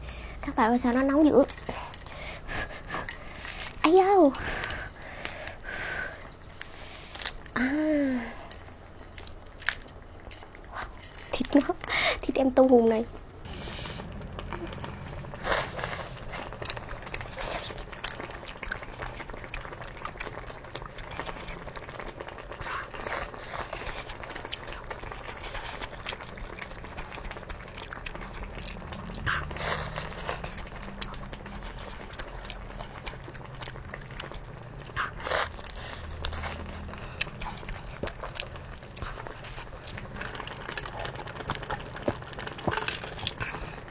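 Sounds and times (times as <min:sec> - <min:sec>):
chewing with wet clicks: 0:16.2 - 0:43.7.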